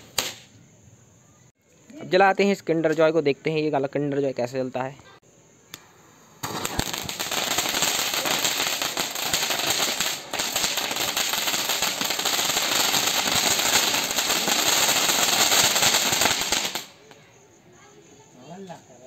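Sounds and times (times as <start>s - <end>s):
rapid crackling of sparks: 0.0s - 0.6s, 6.4s - 17.3s
spark fountain hissing: 6.4s - 17.1s.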